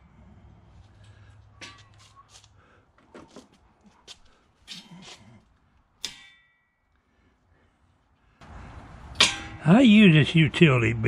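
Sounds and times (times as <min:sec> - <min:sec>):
hand tools clanking on steel frame: 0:01.1 - 0:02.2, 0:06.0 - 0:06.8, 0:09.1 - 0:09.8
ringing metal strike: 0:06.0 - 0:06.9, 0:09.1 - 0:09.7.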